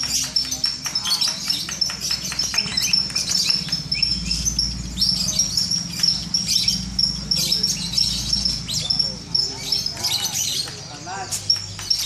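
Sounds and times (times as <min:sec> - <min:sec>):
lovebirds chirping: 0:00.0 - 0:12.0.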